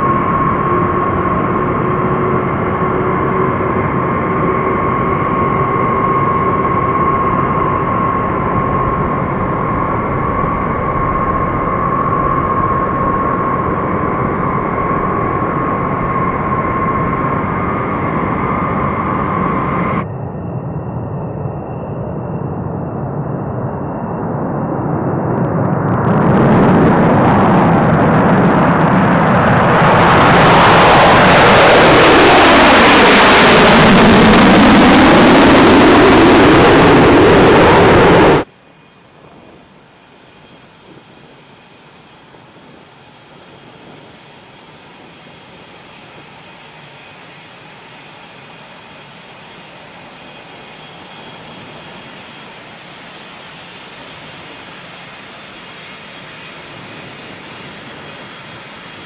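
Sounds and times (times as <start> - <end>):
faint high engine whine: 0.0 - 59.0
jet roar on takeoff: 0.0 - 59.0
steady jet hum: 0.0 - 59.0.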